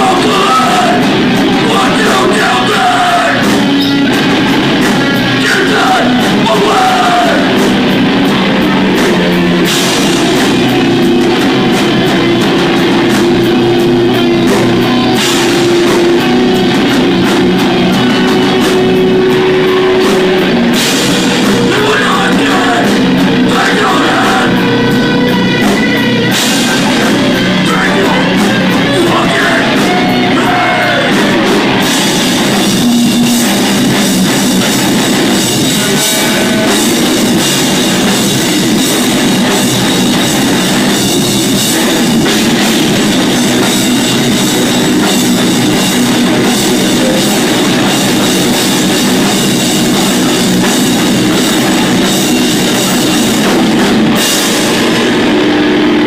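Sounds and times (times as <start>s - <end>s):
vocalist singing: 0.0s - 4.0s, 4.9s - 7.9s, 14.9s - 25.4s, 26.3s - 34.1s, 35.2s - 38.1s
bass guitar: 0.0s - 56.0s
distorted electric guitars: 0.0s - 56.0s
drum kit: 0.0s - 56.0s.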